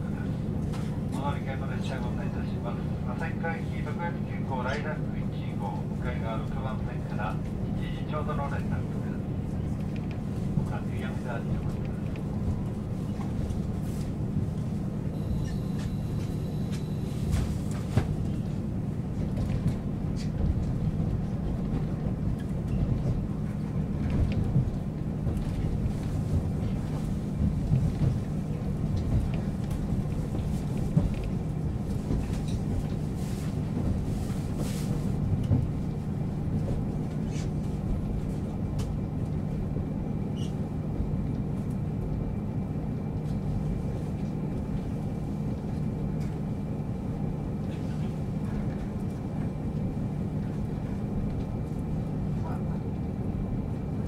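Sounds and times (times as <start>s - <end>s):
diesel railcar idling: 7.2s - 54.0s.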